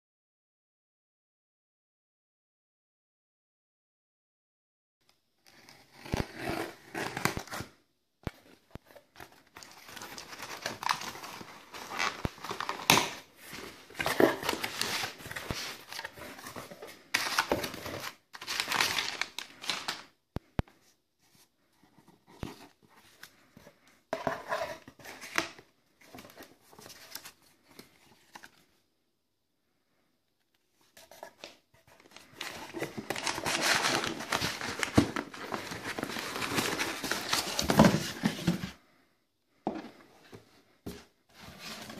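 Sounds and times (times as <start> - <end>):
cardboard and paper crinkling: 5.6 - 20.2, 20.8 - 28.7, 30.8 - 38.8, 39.7 - 41.9.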